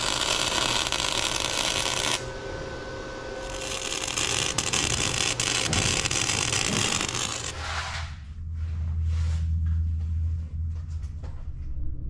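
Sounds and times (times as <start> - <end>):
welding arc crackling and sizzling: 0.0 - 7.7.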